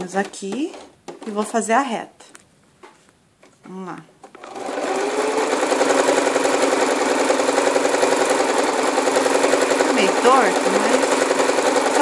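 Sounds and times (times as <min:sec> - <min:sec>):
electric sewing machine stitching: 0:04.3 - 0:12.0.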